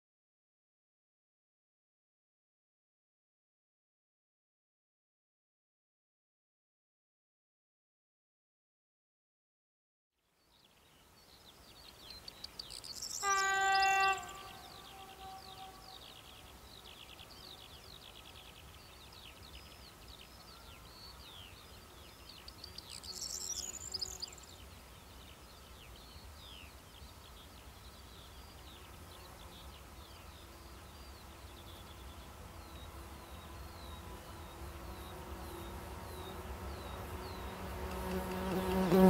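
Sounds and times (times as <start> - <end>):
birds chirping: 10.5 - 39.0.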